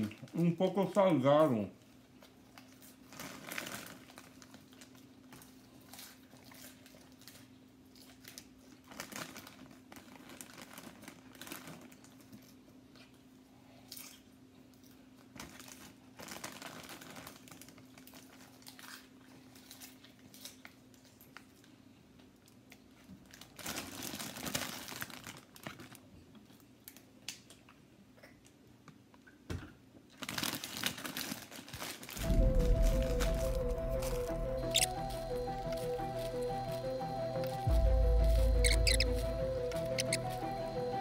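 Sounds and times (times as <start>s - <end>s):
chewing popcorn: 1.8s - 29.0s
plastic bag crinkling: 2.6s - 5.1s, 8.9s - 12.2s, 15.4s - 18.3s, 23.4s - 26.0s, 30.2s - 32.3s
music: 32.2s - 41.0s.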